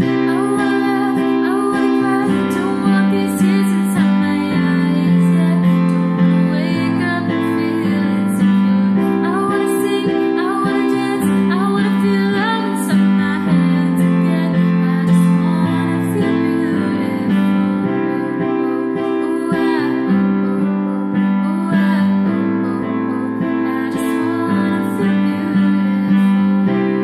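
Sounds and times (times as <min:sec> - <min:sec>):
woman singing a pop ballad: 0:00.0 - 0:27.0.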